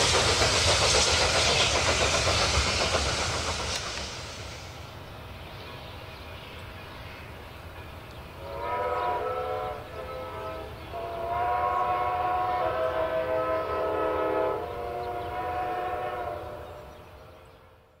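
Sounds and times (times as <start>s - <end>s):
low rumble of train: 0.0s - 18.0s
steam whistle blasts: 8.4s - 16.9s.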